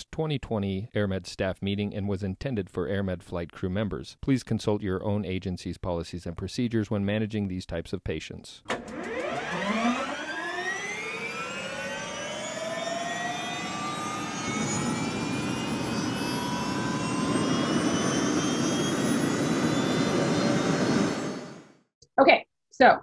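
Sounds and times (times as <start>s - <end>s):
helicopter turbine whine: 8.7s - 21.9s.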